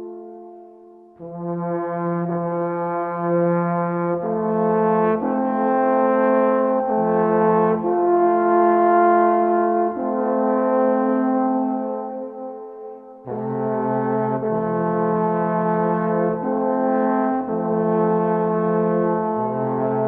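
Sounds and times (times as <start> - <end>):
brass band playing chords: 13.3 - 20.0.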